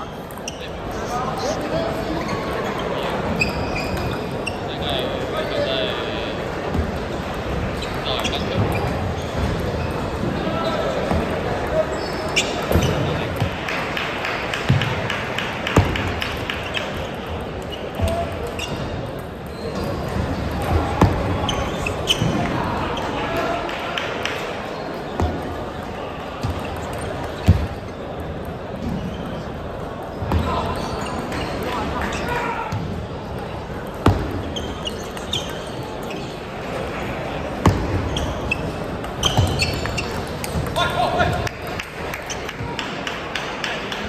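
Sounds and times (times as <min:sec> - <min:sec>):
sports shoes squeaking on floor: 0:00.0 - 0:13.6, 0:15.6 - 0:23.6, 0:24.3 - 0:41.5
murmur of a large hall: 0:00.0 - 0:44.0
clicks from other tables: 0:12.4 - 0:19.9, 0:39.0 - 0:44.0.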